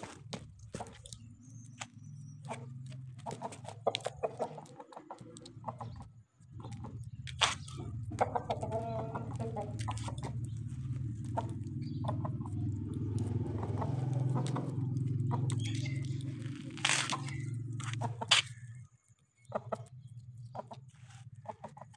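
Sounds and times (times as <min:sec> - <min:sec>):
roosters clucking: 0:00.0 - 0:21.9.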